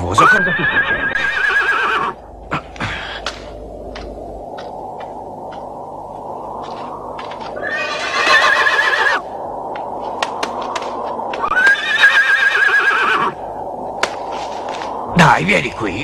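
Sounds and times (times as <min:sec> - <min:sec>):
horse whinnying: 0:00.1 - 0:02.2, 0:07.6 - 0:09.2, 0:11.4 - 0:13.4.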